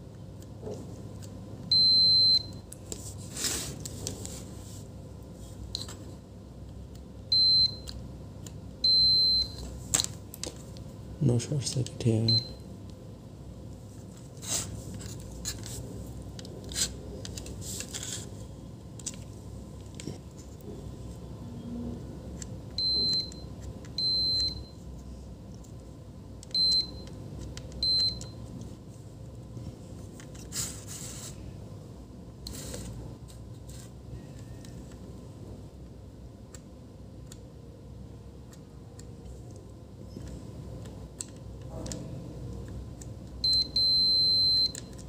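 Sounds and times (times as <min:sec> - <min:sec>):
multimeter short high beeps: 0:43.4 - 0:44.8.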